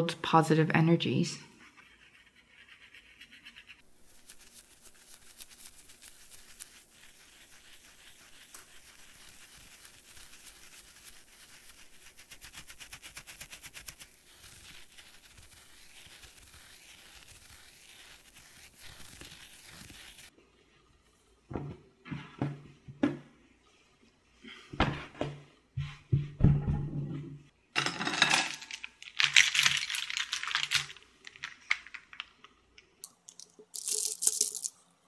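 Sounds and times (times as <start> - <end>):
brush scrubbing on silicone: 1.1 - 20.4.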